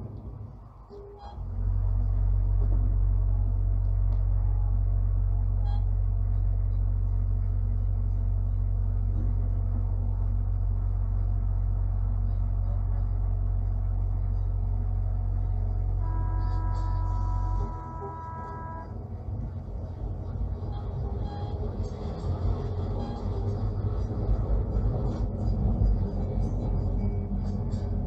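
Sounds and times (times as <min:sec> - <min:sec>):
electric tram rumbling on track: 0:00.0 - 0:28.0
steady whining tone: 0:13.6 - 0:28.0.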